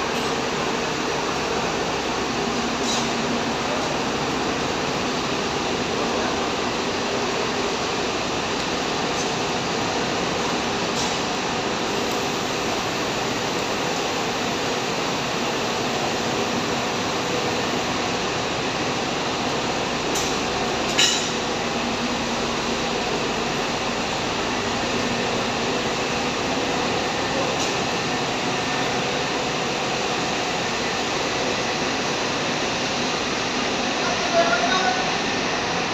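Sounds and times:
bus engines idling: 0.0s - 35.9s
sharp clink: 20.9s - 21.4s.

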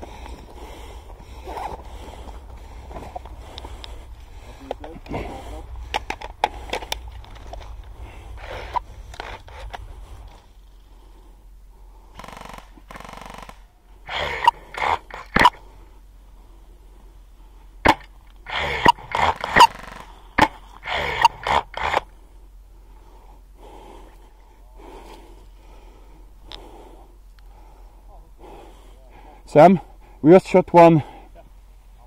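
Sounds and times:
breathy huffs: 0.0s - 12.9s, 22.0s - 30.2s.

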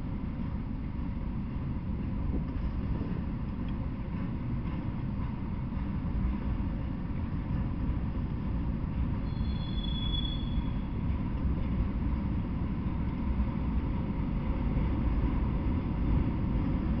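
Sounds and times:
train wheels rumbling on rails: 0.0s - 17.0s
high wheel squeal: 9.2s - 11.0s.

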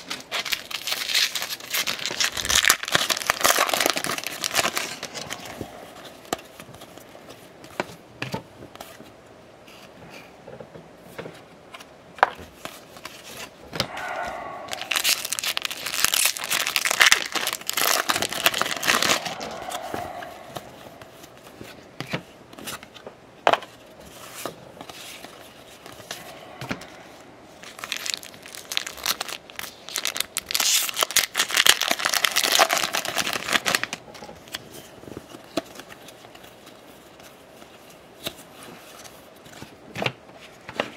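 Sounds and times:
foil wrappers crinkling and tearing: 0.0s - 7.0s, 14.7s - 19.8s, 27.6s - 39.1s.

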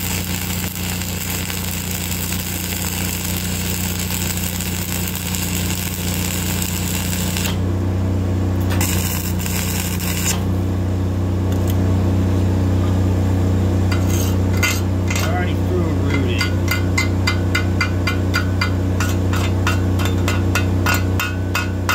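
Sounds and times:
welding arc crackling and hissing: 0.0s - 7.7s, 8.6s - 10.6s
engine drone: 0.0s - 21.9s.

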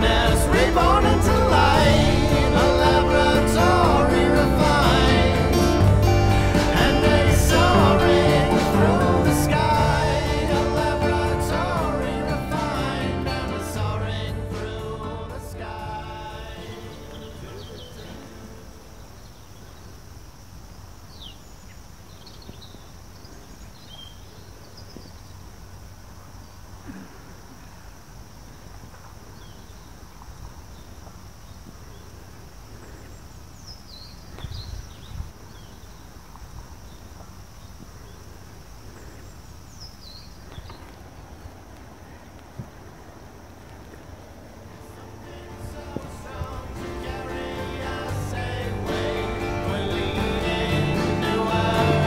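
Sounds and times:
low rumble: 0.0s - 18.4s
low bumps: 0.0s - 19.0s, 40.6s - 52.0s
faint high hiss: 0.0s - 52.0s.

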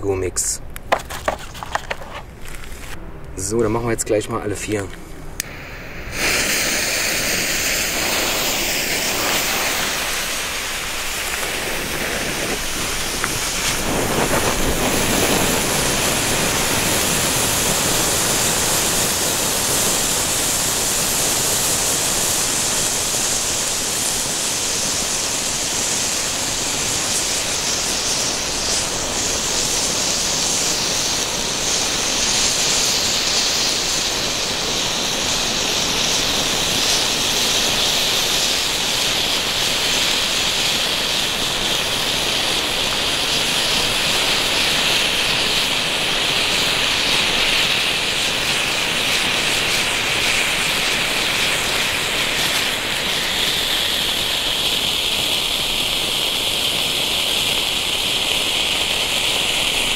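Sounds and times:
flame fountains hissing: 0.0s - 59.9s.

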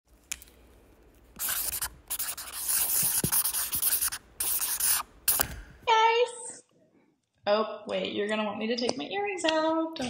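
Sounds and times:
scratchy rubbing on microphone: 1.4s - 5.4s.

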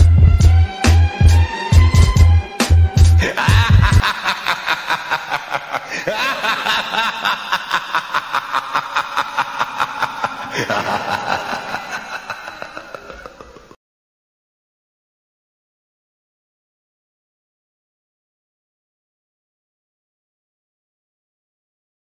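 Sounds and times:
heavy music beat: 0.0s - 11.7s
rapid laughter: 3.2s - 13.8s.

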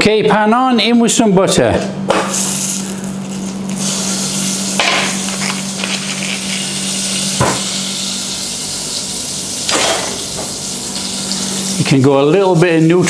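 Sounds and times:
steady low hum: 0.0s - 13.0s
butter sizzling in a pot: 2.3s - 12.2s.

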